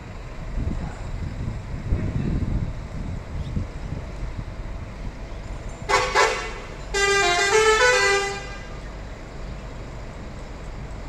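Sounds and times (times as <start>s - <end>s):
musical bus horn: 5.9s - 8.9s.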